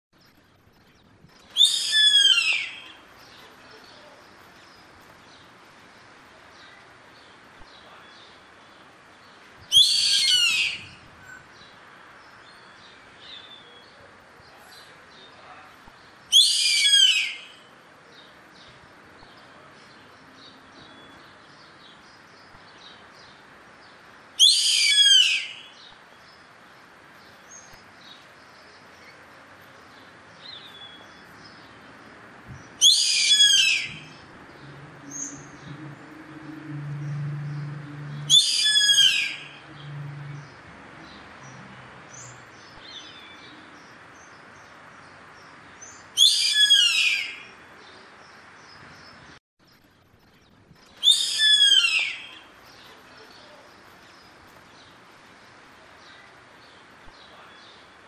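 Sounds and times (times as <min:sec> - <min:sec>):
small birds chirping: 0:37.0 - 0:58.0.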